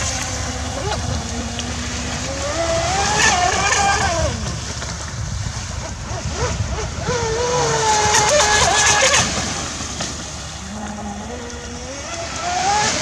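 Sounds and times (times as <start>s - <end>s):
electric motor whining: 0.0s - 4.6s, 6.0s - 9.8s, 10.4s - 13.0s
wind rumble on microphone: 0.0s - 13.0s.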